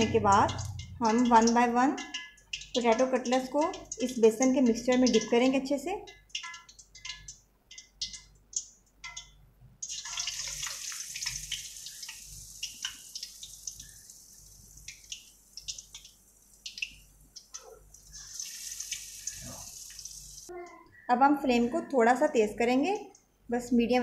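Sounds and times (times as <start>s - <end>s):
oil crackling and popping: 0.0s - 20.5s
food sizzling in hot oil: 9.1s - 20.5s.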